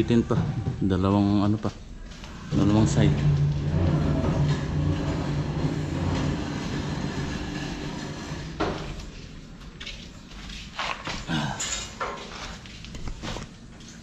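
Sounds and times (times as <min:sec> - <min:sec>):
mechanical rumble and hum: 0:00.0 - 0:11.6.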